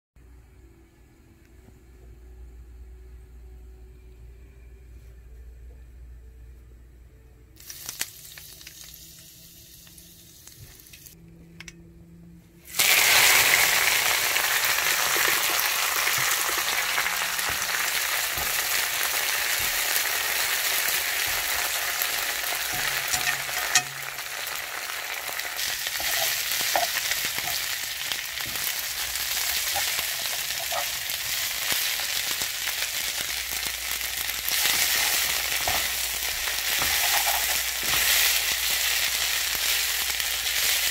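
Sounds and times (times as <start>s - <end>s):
leaves sizzling in a pan: 7.6s - 11.2s, 12.6s - 40.9s.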